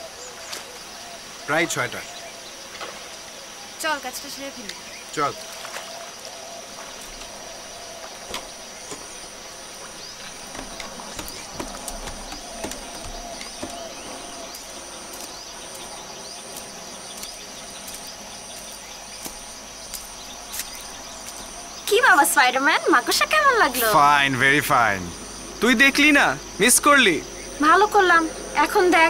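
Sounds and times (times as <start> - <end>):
high insect drone: 0.0 - 29.0
pulsing insect chirp: 0.0 - 29.0
knocks and creaks of wooden boat: 6.7 - 21.7.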